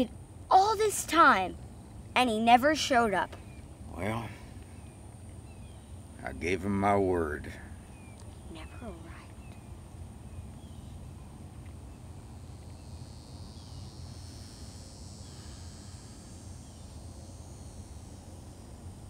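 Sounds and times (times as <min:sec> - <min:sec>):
insects trilling: 0:00.0 - 0:19.0
steady low rumble: 0:01.1 - 0:14.2
faint bird chirps: 0:03.0 - 0:06.6, 0:07.6 - 0:12.1.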